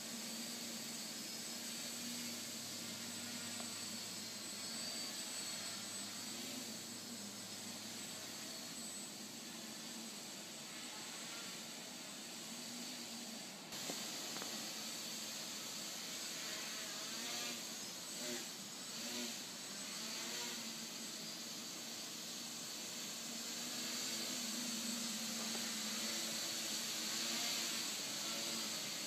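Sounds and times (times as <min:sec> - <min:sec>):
drone motors whirring: 0:00.0 - 0:29.0
steady hiss: 0:00.0 - 0:29.0.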